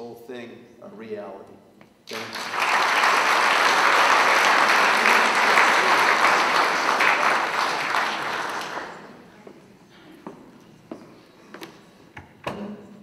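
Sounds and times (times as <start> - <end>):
audience applauding: 2.1 - 9.4.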